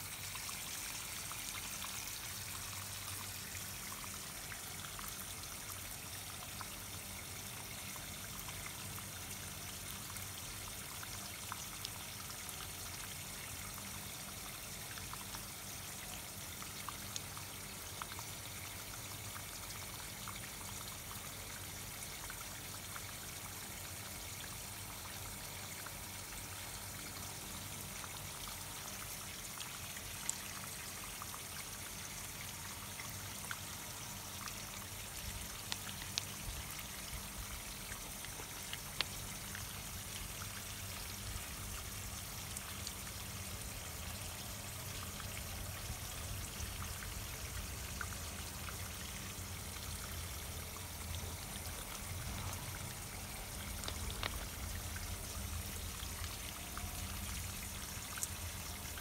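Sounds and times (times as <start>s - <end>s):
water drip ticks: 0.0s - 59.0s
water trickling over pebbles: 0.0s - 59.0s.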